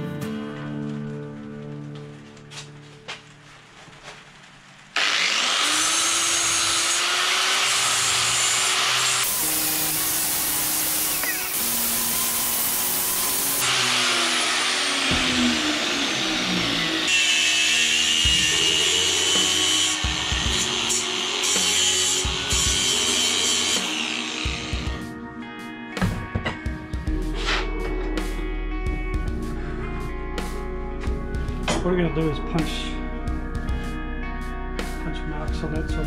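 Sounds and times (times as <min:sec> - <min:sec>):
power tool working steel: 0:05.0 - 0:25.0
angle grinder grinding metal: 0:05.0 - 0:25.1.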